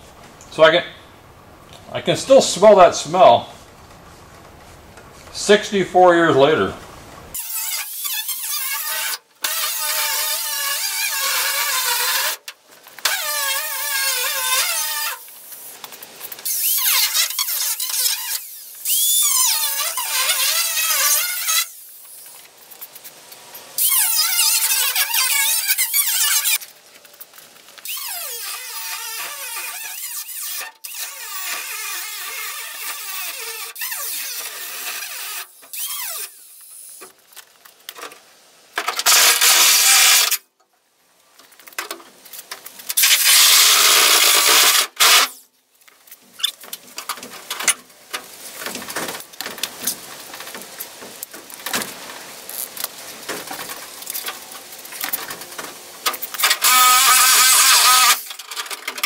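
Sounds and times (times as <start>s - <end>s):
angle grinder cutting steel: 7.4s - 12.4s, 13.0s - 15.3s, 16.4s - 22.2s, 23.8s - 26.6s, 27.8s - 37.0s, 39.0s - 40.4s, 43.0s - 45.4s, 56.4s - 58.4s.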